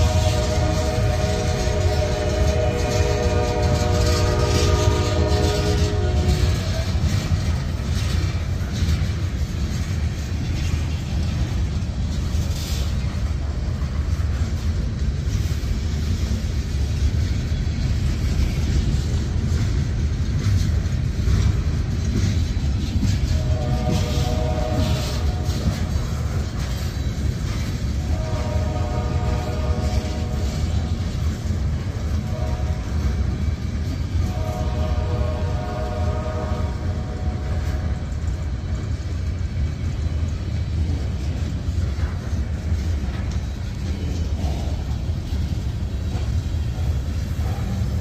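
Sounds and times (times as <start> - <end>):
steel train wheels rumbling on rails: 0.0 - 48.0.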